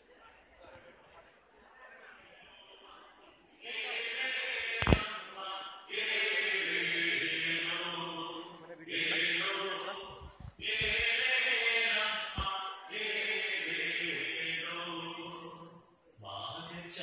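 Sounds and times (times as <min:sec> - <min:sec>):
group of voices singing: 0:03.6 - 0:17.0.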